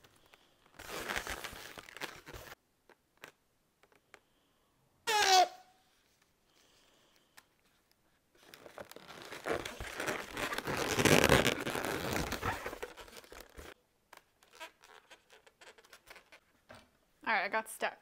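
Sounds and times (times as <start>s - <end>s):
balloons rubbing together: 0.0s - 2.6s, 8.4s - 13.8s, 14.4s - 16.5s.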